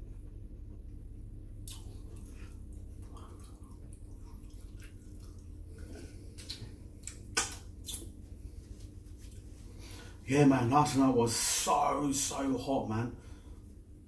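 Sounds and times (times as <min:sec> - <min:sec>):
lip smacks: 0:01.6 - 0:08.2
person chewing: 0:01.6 - 0:08.2.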